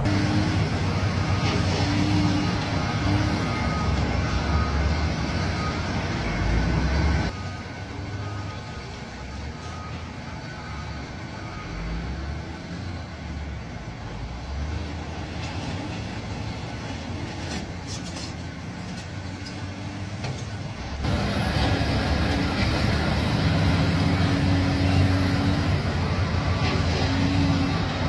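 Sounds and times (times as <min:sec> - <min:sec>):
forklift engine running: 0:00.0 - 0:17.8, 0:18.5 - 0:28.0
hydraulics humming: 0:00.0 - 0:28.0.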